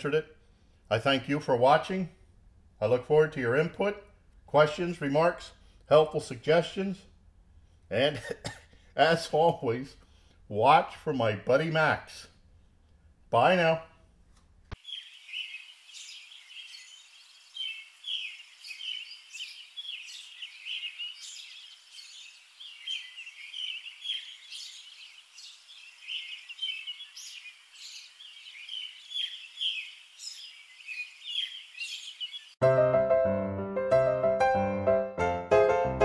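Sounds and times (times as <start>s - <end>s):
small birds chirping: 14.7s - 32.6s.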